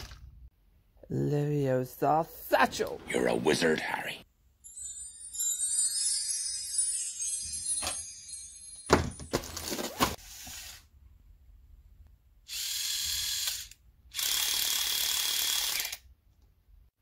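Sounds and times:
small motor whirring: 0:12.5 - 0:16.1.

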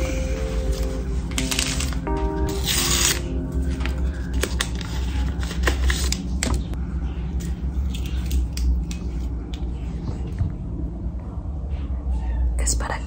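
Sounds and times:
low hum: 0:00.0 - 0:13.0
paper sachet tearing and crinkling: 0:00.7 - 0:06.5.

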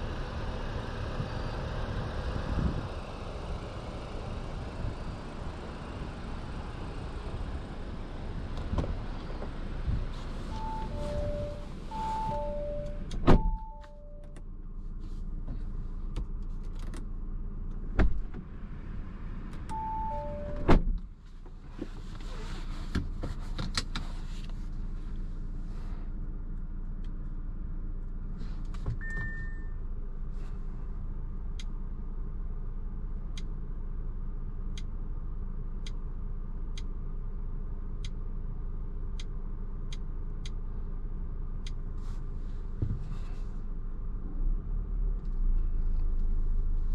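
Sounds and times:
low car hum: 0:00.0 - 0:46.9
car doors shutting: 0:08.6 - 0:14.4, 0:17.9 - 0:18.5, 0:19.6 - 0:21.1, 0:28.7 - 0:29.7
short high beep: 0:10.5 - 0:14.3, 0:29.0 - 0:29.8
two-note warning chimes: 0:10.6 - 0:14.3.

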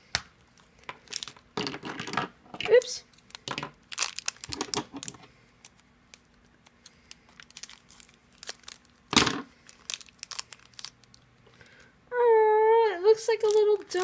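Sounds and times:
plastic wrapper crinkling: 0:00.4 - 0:11.9, 0:13.2 - 0:14.0
scissors cutting plastic wrapper: 0:02.7 - 0:11.2, 0:13.4 - 0:14.0.

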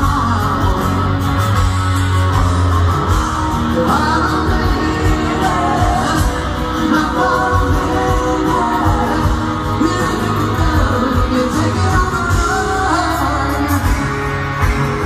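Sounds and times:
electric guitar: 0:00.0 - 0:15.0
person singing: 0:03.5 - 0:15.0.

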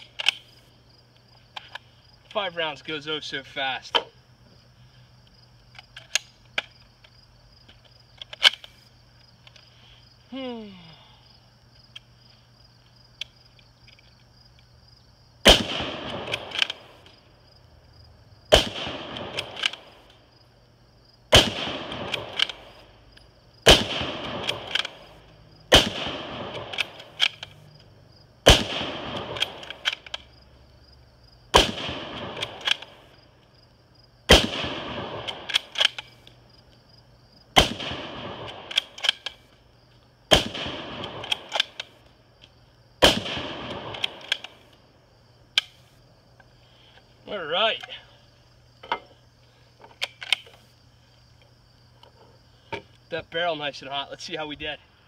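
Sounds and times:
insects buzzing: 0:00.0 - 0:55.0
rifle shots with echo: 0:15.4 - 0:17.0, 0:18.5 - 0:20.0, 0:21.3 - 0:22.9, 0:23.6 - 0:27.6, 0:28.4 - 0:30.0, 0:31.5 - 0:33.1, 0:34.3 - 0:36.1, 0:37.5 - 0:39.2, 0:40.3 - 0:41.9, 0:43.0 - 0:44.6.

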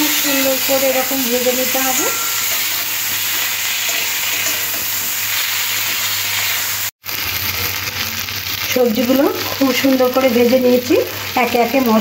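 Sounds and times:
food sizzling in hot oil: 0:00.0 - 0:12.0
metal spatula stirring: 0:00.1 - 0:06.5.

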